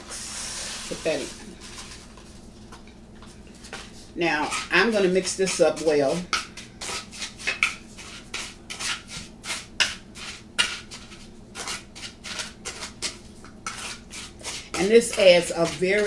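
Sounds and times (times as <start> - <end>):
metal spoon scraping a bowl: 4.2 - 6.2, 6.8 - 16.0.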